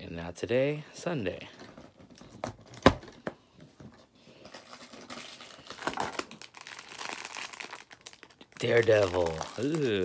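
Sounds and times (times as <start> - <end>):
plastic bag crinkling: 4.3 - 10.0.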